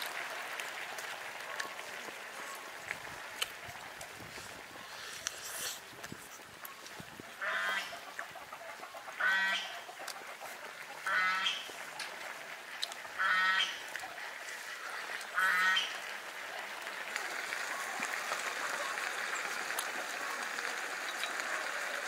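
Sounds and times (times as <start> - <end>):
farm bird calling: 6.6 - 16.1.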